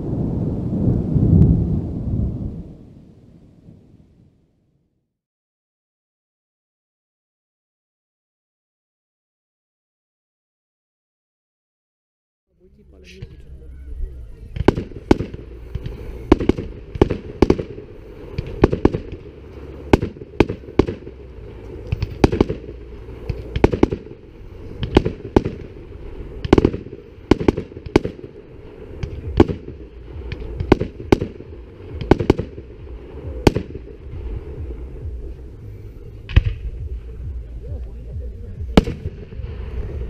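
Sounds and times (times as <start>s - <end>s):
low rumble: 0.0s - 5.0s, 12.5s - 40.0s
firework shells bursting: 14.5s - 37.5s, 38.7s - 40.0s.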